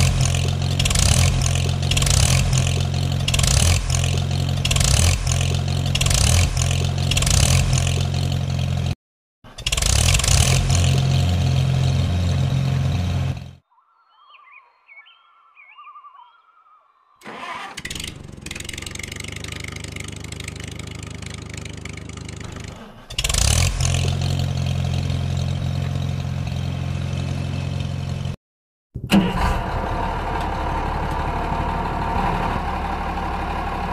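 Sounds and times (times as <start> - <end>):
tractor engine running: 0.0 - 13.6, 17.2 - 28.4, 29.0 - 33.9.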